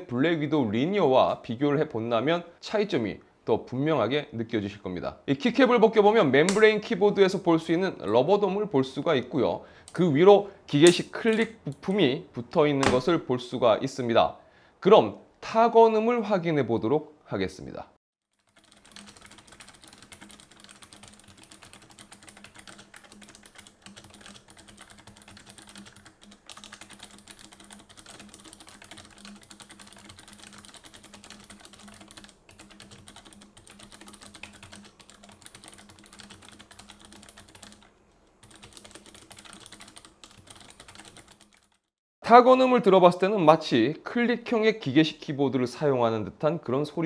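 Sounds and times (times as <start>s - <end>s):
fast keyboard typing: 18.3s - 41.9s.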